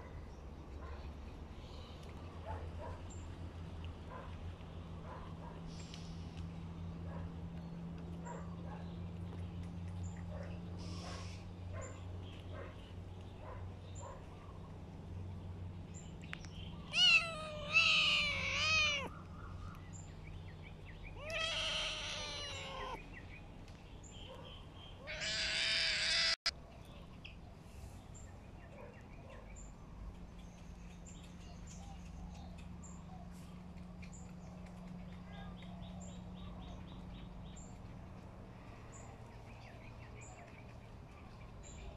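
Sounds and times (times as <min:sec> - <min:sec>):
cat meowing: 0:16.9 - 0:19.1, 0:21.2 - 0:23.0, 0:25.0 - 0:26.5.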